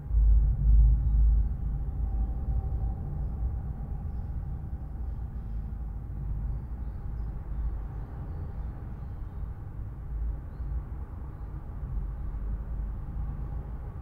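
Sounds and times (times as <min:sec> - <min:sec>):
faint tyre hum: 0:00.0 - 0:14.0
motorway traffic rumble: 0:00.0 - 0:14.0.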